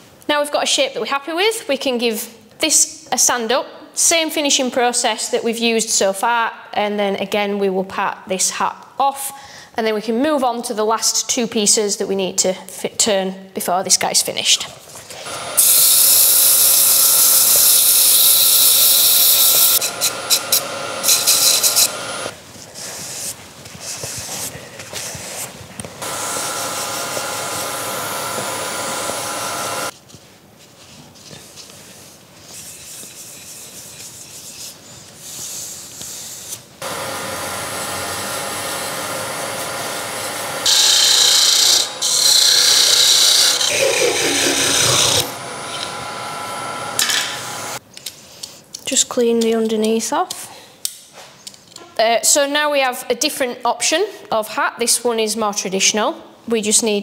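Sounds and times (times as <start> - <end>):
wood lathe humming: 15.3 - 22.3, 26.0 - 29.9, 36.8 - 47.8
sandpaper sanding wood: 15.6 - 25.5, 31.9 - 39.7, 40.7 - 45.3.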